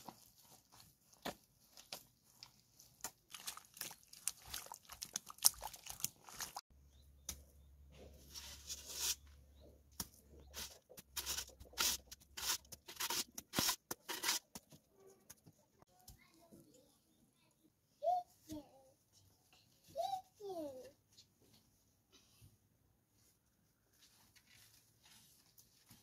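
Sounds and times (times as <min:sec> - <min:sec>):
bare feet treading mud: 0:00.0 - 0:06.6
hands scooping soil: 0:00.0 - 0:06.6, 0:07.9 - 0:14.6.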